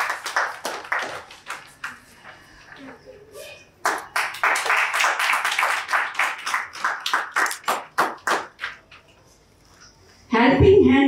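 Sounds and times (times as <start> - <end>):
audience clapping: 0.0 - 2.5, 3.8 - 9.0.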